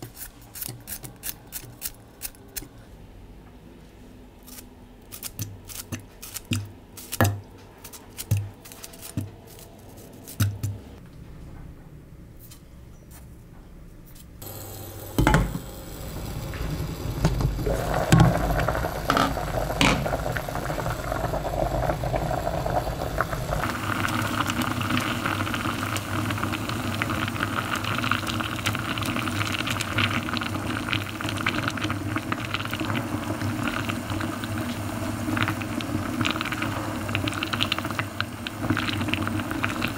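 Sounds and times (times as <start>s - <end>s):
water boiling in a pot: 14.4s - 39.9s.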